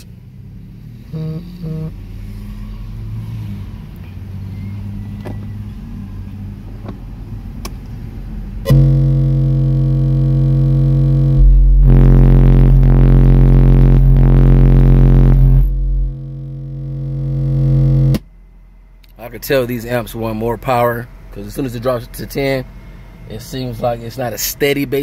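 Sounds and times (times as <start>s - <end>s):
loud bass test tone: 1.0s - 2.1s, 8.6s - 19.0s.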